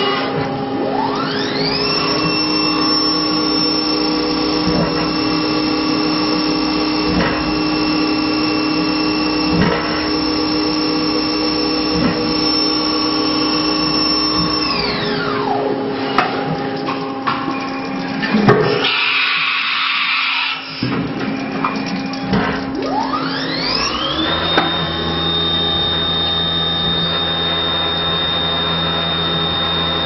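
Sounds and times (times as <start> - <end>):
milling machine spindle whine: 0.0 - 30.0
metal cutting noise bursts: 1.3 - 15.6.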